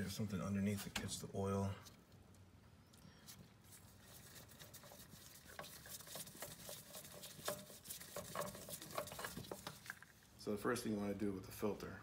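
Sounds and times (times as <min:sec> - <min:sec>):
faint clicks and scrapes: 0:01.8 - 0:10.3.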